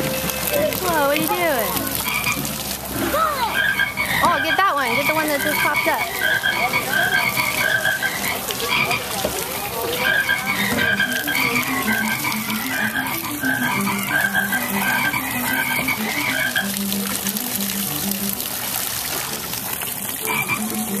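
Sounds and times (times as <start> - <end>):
frog croaks: 1.2 - 17.8, 20.1 - 21.0.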